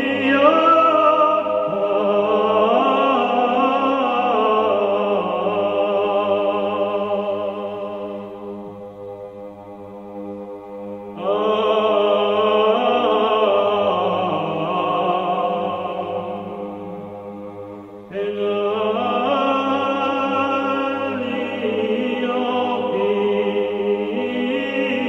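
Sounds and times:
voices chanting a hymn: 0:00.0 - 0:25.0.

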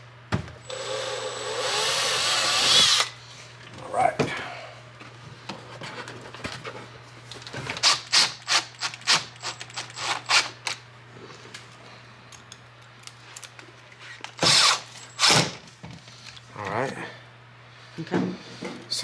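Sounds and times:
power drill bursts: 0:00.6 - 0:03.2, 0:14.4 - 0:15.5.

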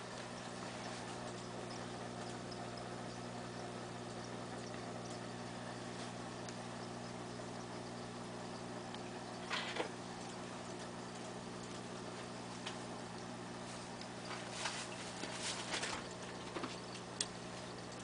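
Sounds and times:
air bubbles streaming: 0:00.0 - 0:18.0
aquarium air pump humming: 0:00.0 - 0:18.0
faint ticks: 0:00.1 - 0:09.4.

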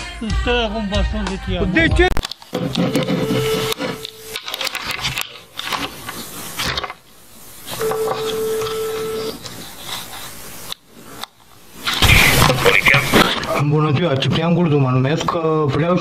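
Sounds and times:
crackling noise bursts: 0:02.1 - 0:13.6.

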